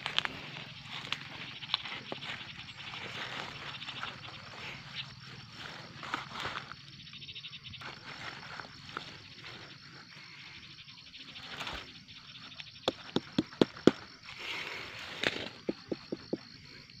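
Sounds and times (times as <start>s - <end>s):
hand knocking on gourd: 12.9s - 14.0s, 15.7s - 16.4s.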